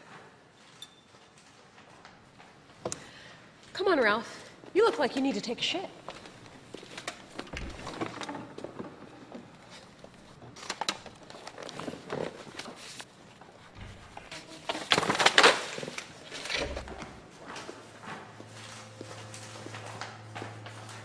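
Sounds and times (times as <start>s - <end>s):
paper rustling and crinkling: 6.0s - 21.0s.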